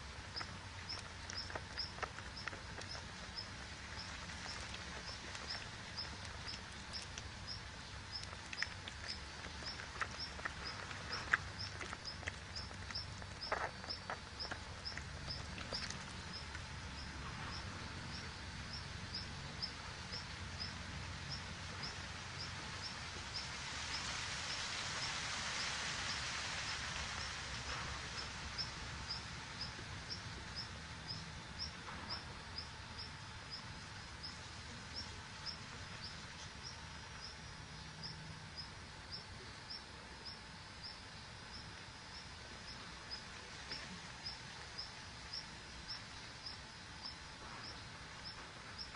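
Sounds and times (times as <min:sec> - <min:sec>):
hiss: 0:21.0 - 0:29.7.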